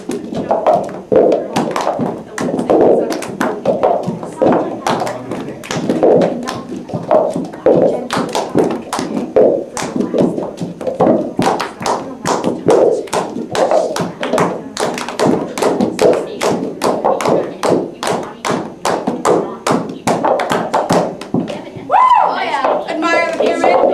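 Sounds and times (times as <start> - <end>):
plastic cups tapping on carpet: 0.0 - 21.9, 22.6 - 23.9
hand claps: 0.0 - 23.9.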